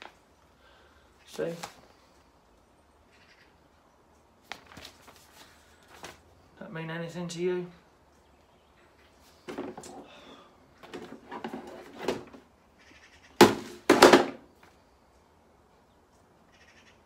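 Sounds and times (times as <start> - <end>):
paper leaflet rustling: 1.3 - 1.9, 4.4 - 6.2
loud thumps: 13.4 - 14.4.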